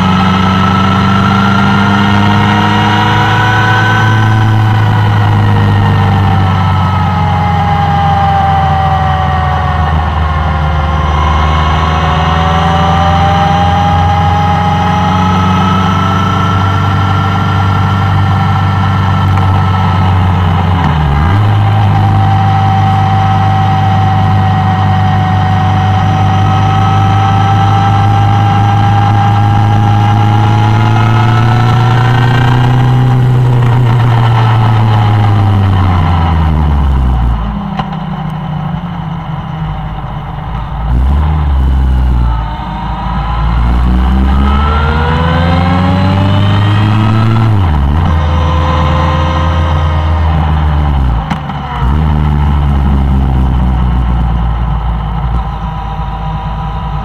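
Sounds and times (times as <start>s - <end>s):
motorcycle engine running: 11.8s - 57.0s.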